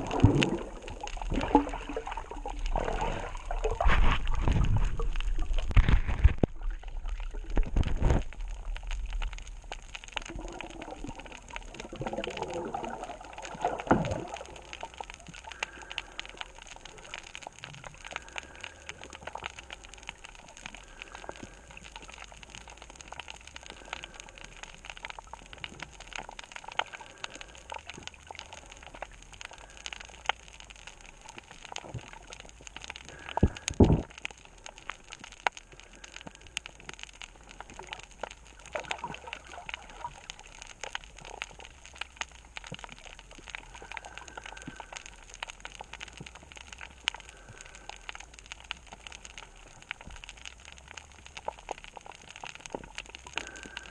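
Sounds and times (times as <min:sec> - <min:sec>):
snapping shrimp crackle underwater: 0:00.0 - 0:53.9.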